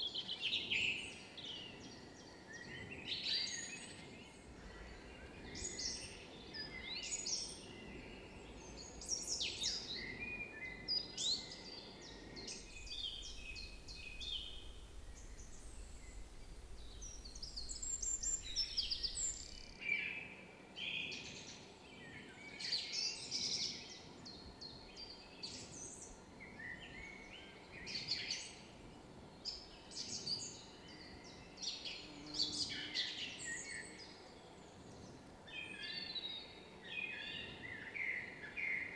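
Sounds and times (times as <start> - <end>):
birds chirping and trilling: 0.2 - 20.0
faint low rumble: 12.3 - 19.8.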